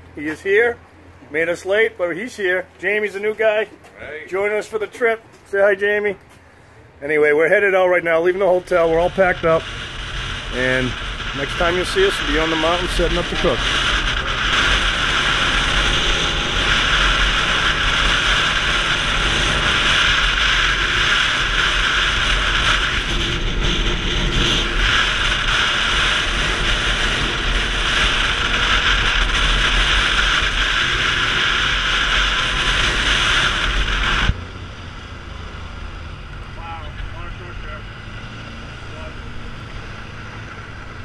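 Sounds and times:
atv engine rumble: 6.2s - 41.0s
wind rush on microphone: 8.6s - 34.4s.

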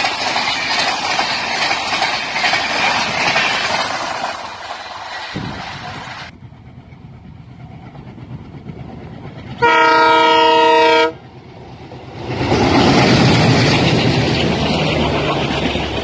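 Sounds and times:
diesel locomotive rumble: 0.0s - 16.0s
train wheel noise: 0.0s - 16.0s
locomotive horn chord: 9.6s - 11.2s.

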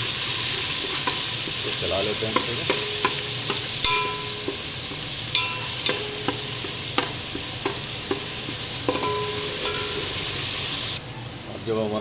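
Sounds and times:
garlic sizzling in hot oil: 0.0s - 11.0s
metal skimmer clinking on pot: 2.2s - 10.4s.

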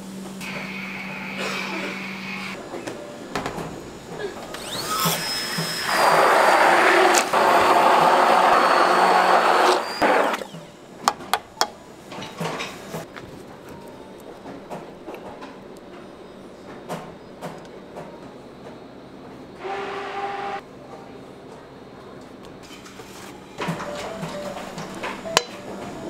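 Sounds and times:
electric mixer motor running: 4.6s - 10.5s, 19.6s - 20.6s.

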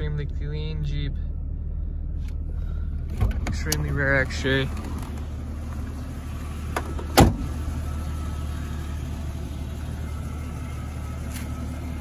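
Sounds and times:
car engine idling: 0.0s - 12.0s
car door shutting: 6.7s - 7.6s.

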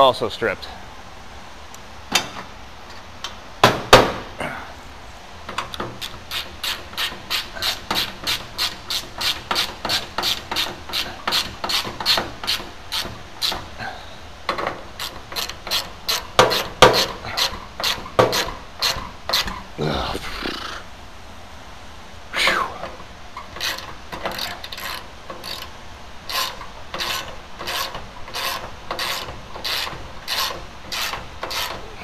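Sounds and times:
ratchet wrench clicking: 5.7s - 13.6s, 15.0s - 19.5s, 23.5s - 25.7s, 26.3s - 31.8s.

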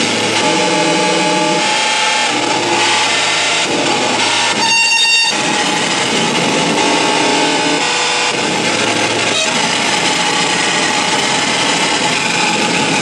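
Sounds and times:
harsh distorted noise music: 0.0s - 13.0s
low hum: 0.0s - 13.0s
shrill high whistling tone: 4.4s - 5.5s, 9.3s - 9.7s.

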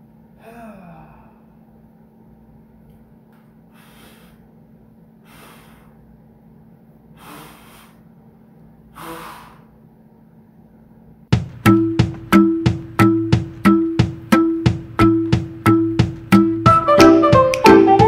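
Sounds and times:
man gasping sharply: 3.8s - 4.4s, 5.2s - 6.0s, 7.2s - 8.0s, 9.0s - 9.8s.

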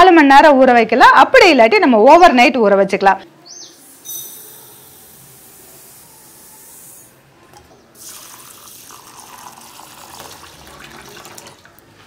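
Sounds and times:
grains pouring into glass bowl: 8.0s - 11.4s
water pouring onto grains: 8.0s - 11.7s.

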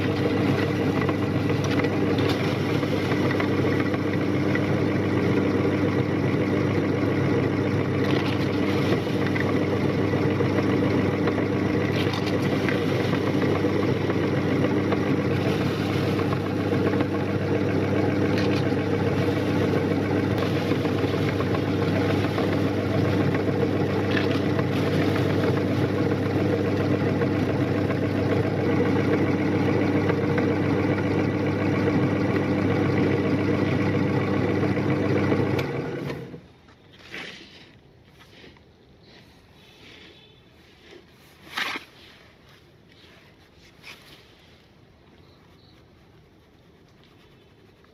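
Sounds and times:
electric grinder motor hum: 0.0s - 36.4s.

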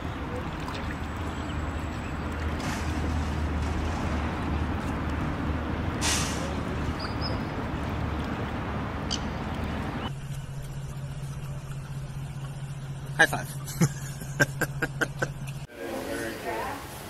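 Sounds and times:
brief hiss: 6.0s - 6.5s
low mechanical hum: 6.7s - 15.7s
higher-pitched low hum: 8.6s - 15.7s
background noise: 15.6s - 17.0s.

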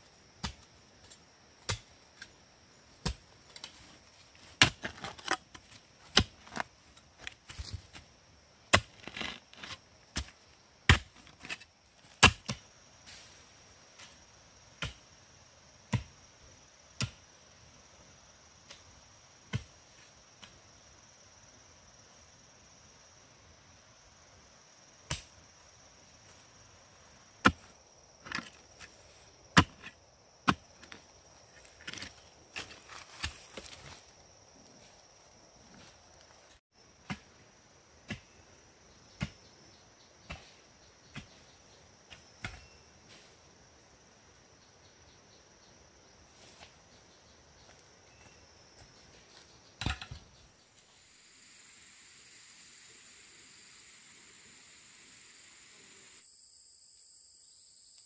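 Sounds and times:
digging bar striking stony soil: 0.4s - 2.4s, 3.0s - 12.6s, 27.4s - 33.9s, 42.1s - 43.2s, 49.8s - 50.3s.

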